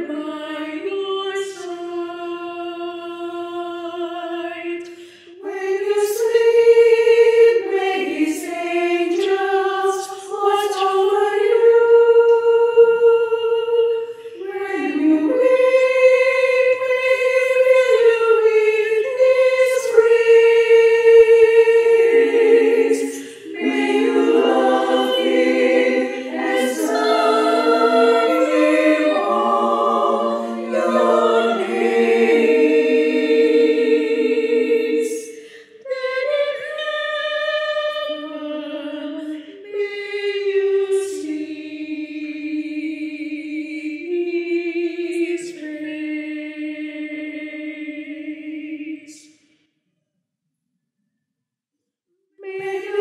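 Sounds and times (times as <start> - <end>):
women's choir singing a hymn: 0.0 - 49.3, 52.4 - 53.0
singers breathing: 4.8 - 5.4, 23.1 - 23.6, 35.3 - 35.8.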